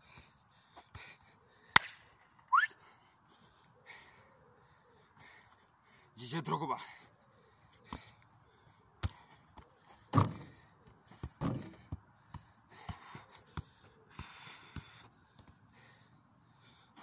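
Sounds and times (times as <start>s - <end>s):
football thumps from feet: 10.1s - 10.6s, 11.2s - 12.0s.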